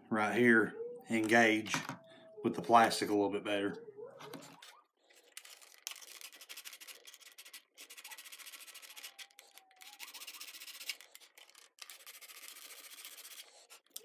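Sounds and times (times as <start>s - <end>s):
sandpaper rubbing on plastic: 5.4s - 14.0s.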